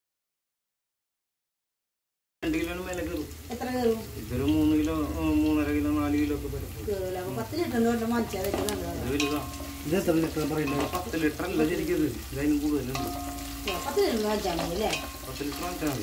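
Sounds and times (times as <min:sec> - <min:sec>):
food frying in hot fat: 0:02.4 - 0:16.0
ladle scraping pot: 0:08.2 - 0:12.0.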